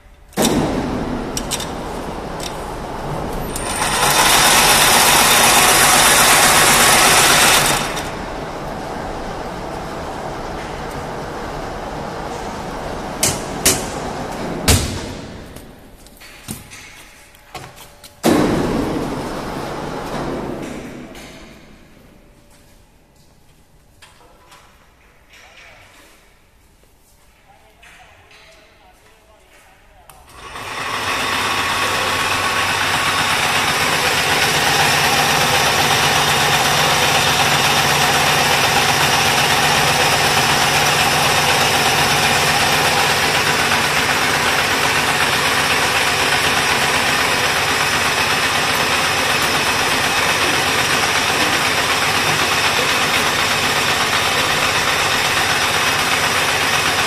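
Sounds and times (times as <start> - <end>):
braiding machine whining: 0.3 - 15.6, 30.3 - 57.0.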